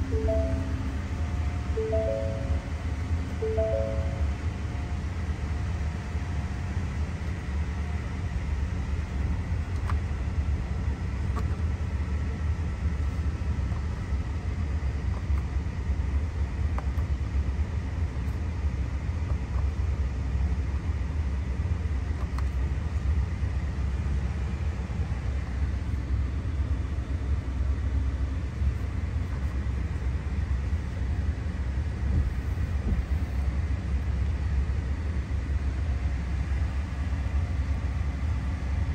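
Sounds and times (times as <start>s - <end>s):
truck engine idling: 0.0s - 15.0s.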